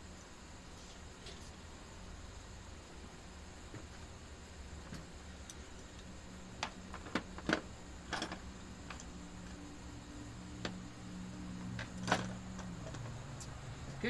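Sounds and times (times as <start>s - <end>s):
low steady hum: 0.0s - 14.0s
faint clicks and knocks: 10.6s - 10.8s.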